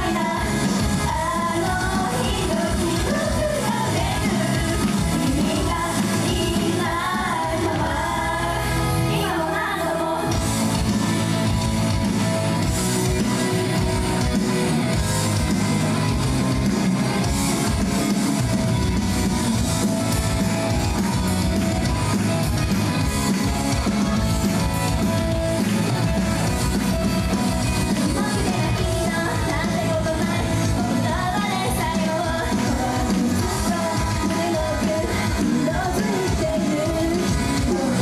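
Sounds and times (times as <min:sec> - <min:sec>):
people singing: 0:00.0 - 0:10.5, 0:28.1 - 0:38.0
rock pop music with guitar and drums: 0:00.0 - 0:38.0.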